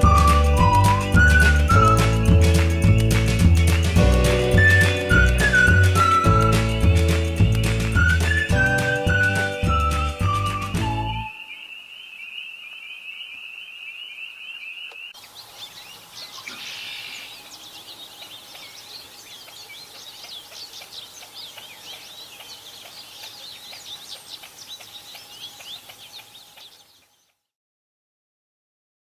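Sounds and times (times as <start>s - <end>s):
bird twittering chirps: 10.9s - 27.4s.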